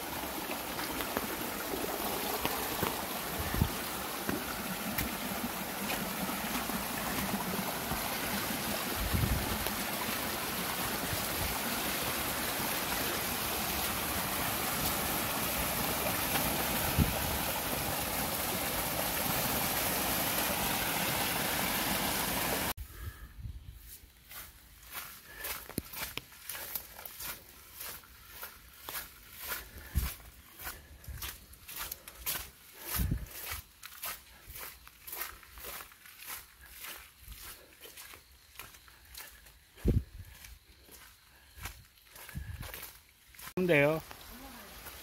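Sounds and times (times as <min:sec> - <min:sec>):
water rushing over rocks: 0:00.0 - 0:22.8, 0:43.7 - 0:45.0.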